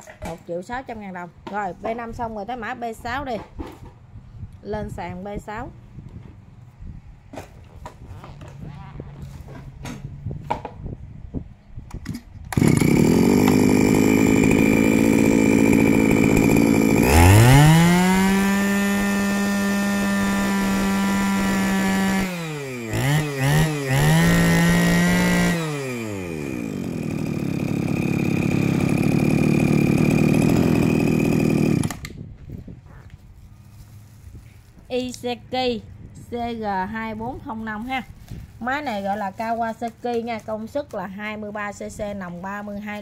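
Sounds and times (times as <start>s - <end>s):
brush cutter engine revving: 12.0s - 32.2s.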